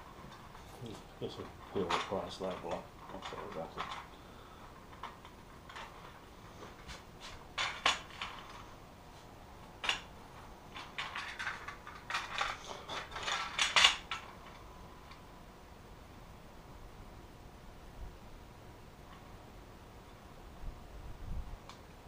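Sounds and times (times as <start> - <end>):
screws clinking and rattling: 0.0 - 4.1, 4.8 - 6.2, 10.7 - 15.2.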